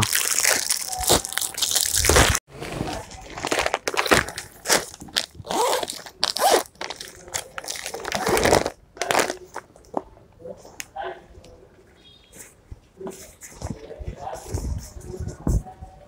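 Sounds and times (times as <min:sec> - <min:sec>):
plastic packaging crinkling: 0:00.0 - 0:10.0.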